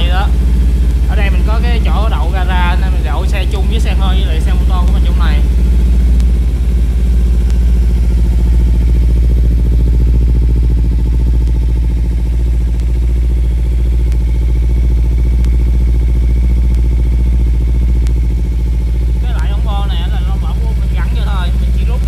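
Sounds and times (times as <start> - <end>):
motorcycle engine idling: 0.0 - 22.0.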